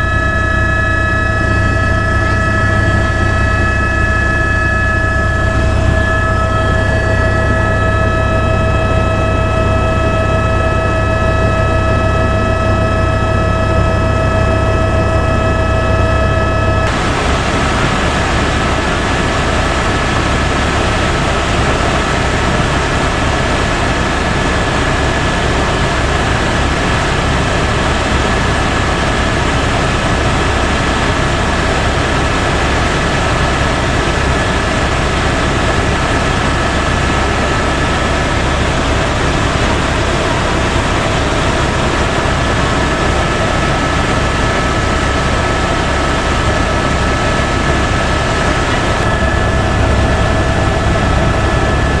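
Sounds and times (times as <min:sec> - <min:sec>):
high whining tones: 0:00.0 - 0:25.2
helicopter rotor and engine drone: 0:00.0 - 0:52.0.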